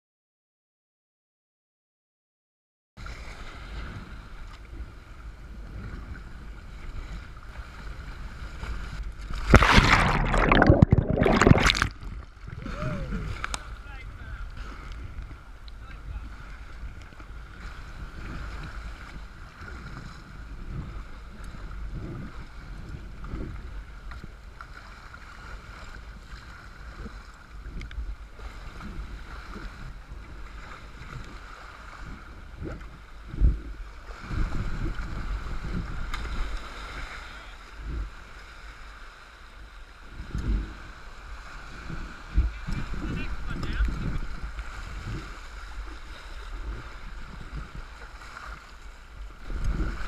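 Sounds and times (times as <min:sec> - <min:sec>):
wind buffeting microphone: 0:03.8 - 0:24.6, 0:25.6 - 0:37.0, 0:40.0 - 0:50.0
paddle splashes: 0:06.6 - 0:13.9, 0:33.9 - 0:39.2, 0:40.7 - 0:50.0
water sloshing: 0:09.3 - 0:12.5.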